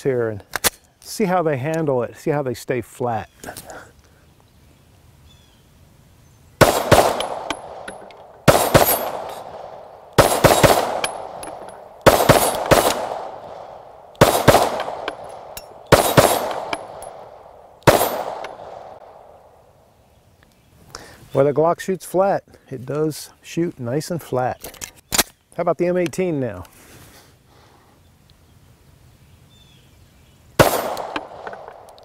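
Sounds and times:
pistol shots: 6.6 - 19.3, 30.6 - 31.9.

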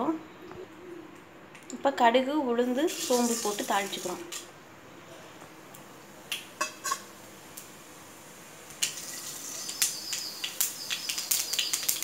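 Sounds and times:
seeds sizzling and popping in oil: 2.8 - 4.5, 5.7 - 12.0.

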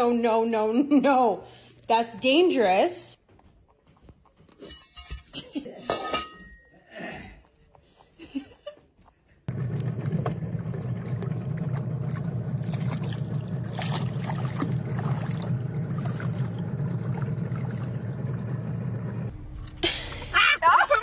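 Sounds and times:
water splashing against hull: 9.5 - 19.3
boat engine humming: 9.5 - 21.0.

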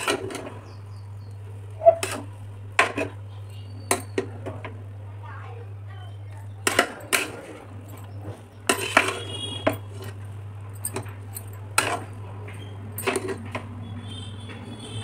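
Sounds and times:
spoon scraping rice: 1.8 - 4.2, 6.7 - 10.3, 11.7 - 12.2
spoon clinking against pot: 1.8 - 4.3, 6.6 - 10.2, 10.8 - 13.6.

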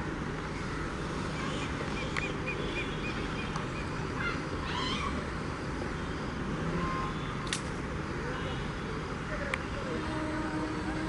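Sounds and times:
train rumbling: 0.0 - 11.0
wavering bird call: 1.4 - 5.2.

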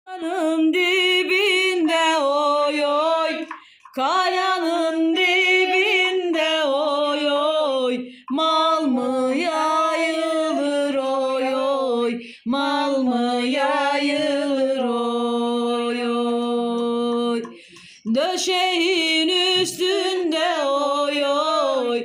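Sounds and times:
person singing unaccompanied: 0.1 - 22.0.

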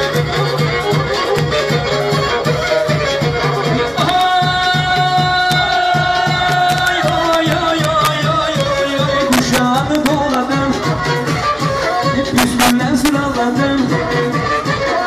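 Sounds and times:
bowed fiddle dance tune: 0.0 - 15.0
steady beat: 0.0 - 15.0.

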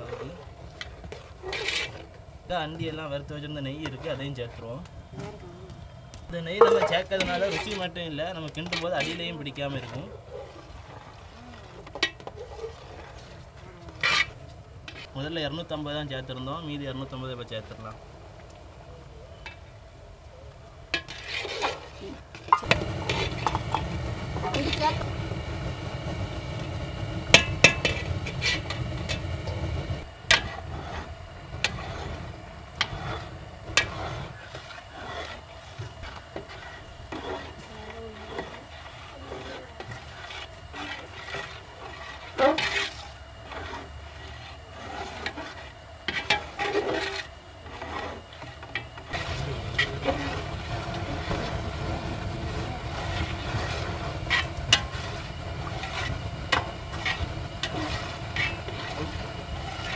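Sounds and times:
ladle scraping metal pot: 0.0 - 2.2, 6.4 - 15.2, 21.0 - 59.9
low rumble: 22.6 - 34.2
thick syrup bubbling: 49.0 - 59.9.

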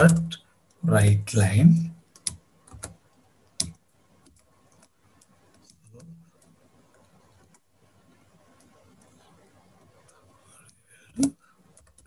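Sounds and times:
keyboard typing clicks: 2.1 - 7.6, 11.2 - 12.0.

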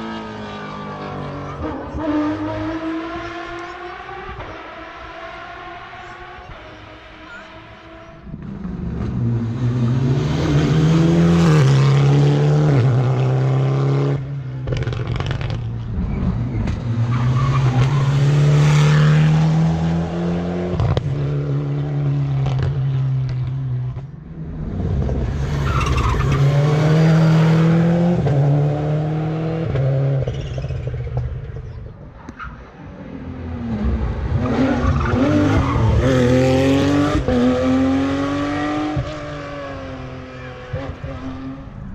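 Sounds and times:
rally cars passing at full speed: 0.0 - 41.9.

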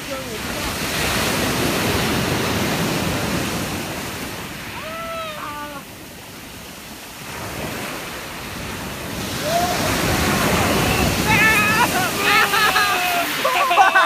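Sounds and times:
surf breaking on pebble beach: 0.0 - 14.0
person shouting: 4.8 - 5.9, 9.4 - 14.0.

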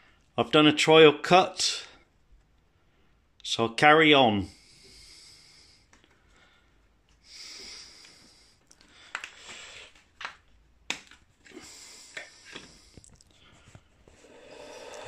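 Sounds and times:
short breathy hisses: 14.2 - 15.0.

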